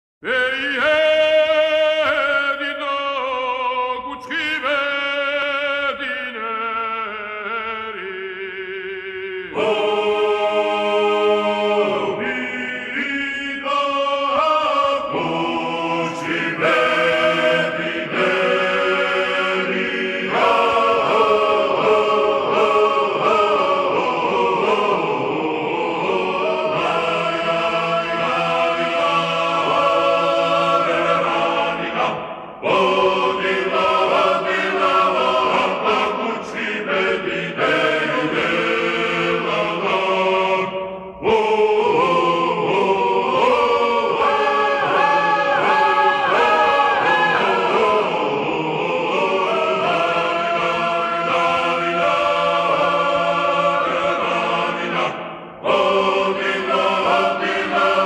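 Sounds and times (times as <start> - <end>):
voices chanting in held notes: 7.6 - 58.0.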